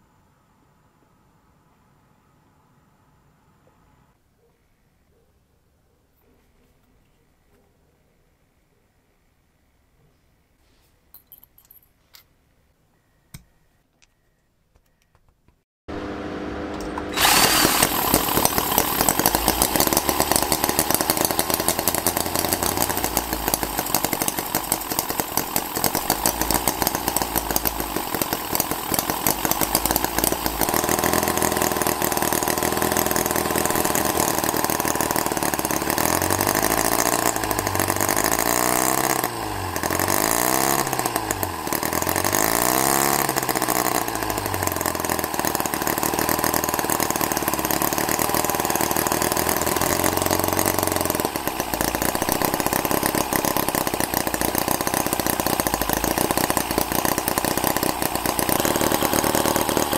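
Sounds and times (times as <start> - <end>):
small metallic clicks: 11.1 - 12.3
model engine running: 15.9 - 59.9.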